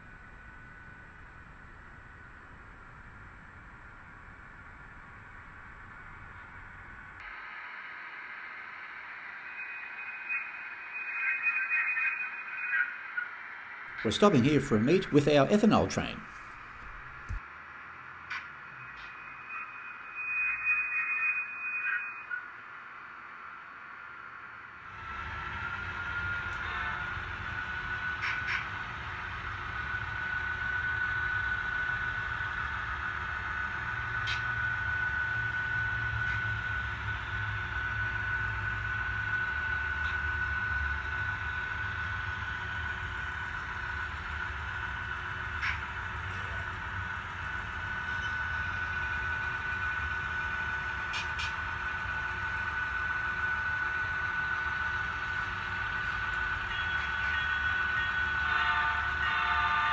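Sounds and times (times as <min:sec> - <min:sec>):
high whine: 0:00.0 - 0:59.9
model locomotives rolling past: 0:23.1 - 0:59.9.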